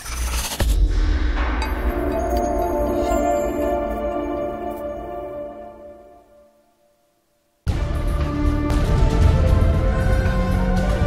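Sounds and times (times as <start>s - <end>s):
theme music with heavy bass: 7.7s - 11.0s.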